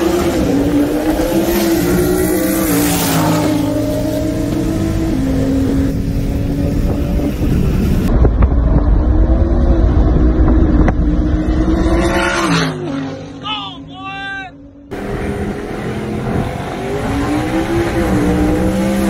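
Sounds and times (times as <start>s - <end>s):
car engine cruising: 0.0s - 14.0s, 14.6s - 19.0s
road and wind noise: 0.0s - 19.0s
deep low rumble: 5.8s - 12.0s.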